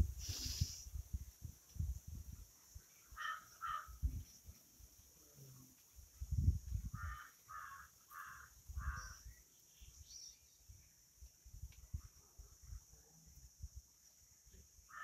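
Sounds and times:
crow cawing: 3.2s - 4.0s, 7.0s - 9.2s.

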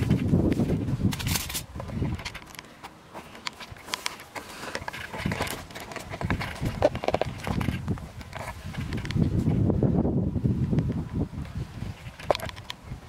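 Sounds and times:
irregular clicks and crackles: 0.0s - 9.4s, 12.0s - 12.8s.

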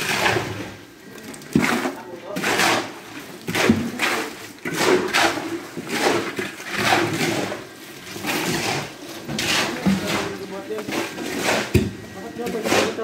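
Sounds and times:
shovel scraping wet concrete: 0.0s - 13.0s.

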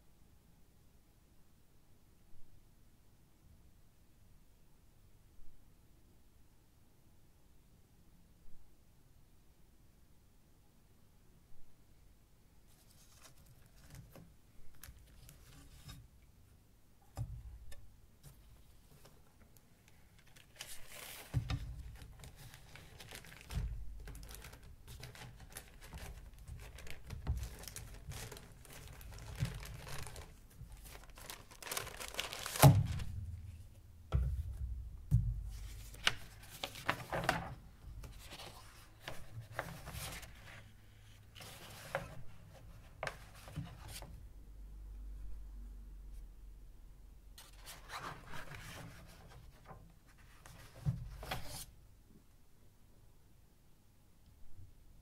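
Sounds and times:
paper and cardboard rustling: 20.0s - 44.1s, 47.4s - 51.7s
knocks and dull thumps: 33.0s - 35.6s.

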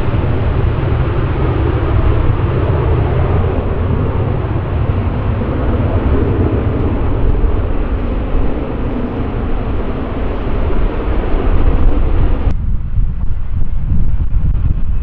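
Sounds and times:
airliner engine rumble: 0.0s - 15.0s.

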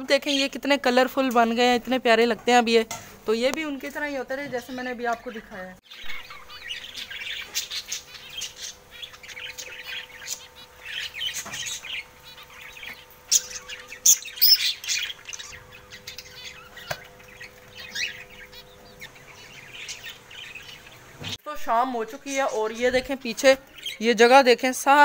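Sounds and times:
budgerigars chirping and chattering: 3.7s - 21.4s, 22.0s - 24.4s.

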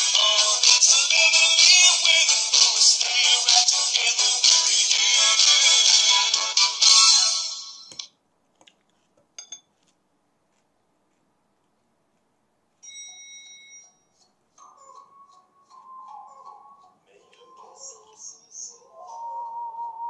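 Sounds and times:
background music: 0.0s - 8.1s, 14.6s - 20.0s.

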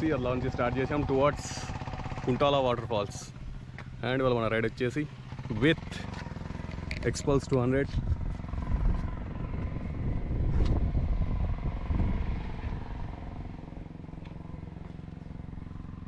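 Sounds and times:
motorcycle engine idling: 0.0s - 16.0s.

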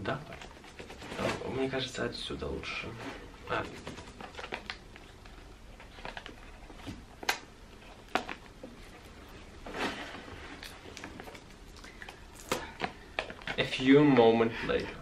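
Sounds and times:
scraping rustle: 0.3s - 4.6s, 8.8s - 11.5s
cardboard box rustling: 8.1s - 11.5s.

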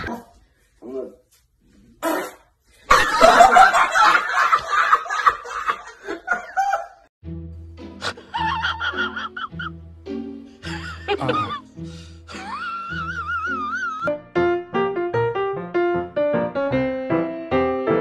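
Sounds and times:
man laughing loudly: 2.9s - 7.0s, 8.0s - 9.7s, 10.7s - 11.7s, 12.3s - 14.0s.

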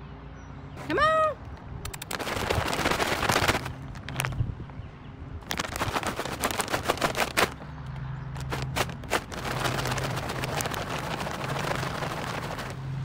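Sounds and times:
bag of treats rattling: 1.9s - 4.4s, 5.4s - 7.7s, 8.4s - 12.8s.

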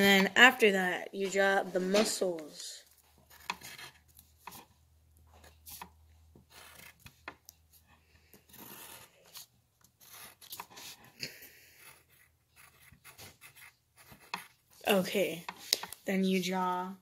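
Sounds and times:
pencil scratching on paper: 2.8s - 16.0s.

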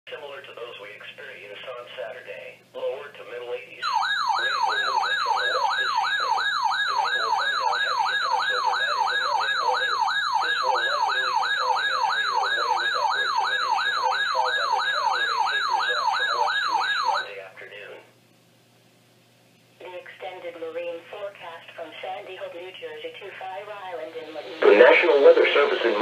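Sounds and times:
faint broadcast voice: 0.1s - 18.1s, 19.8s - 26.0s
alarm siren falling sweeps: 3.8s - 17.3s.

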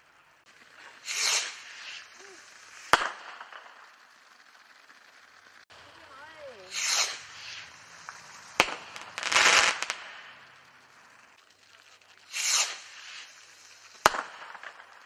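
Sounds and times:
firework hissing rush: 0.0s - 15.0s
firework bang: 0.7s - 4.2s, 6.4s - 11.4s, 12.3s - 15.0s.

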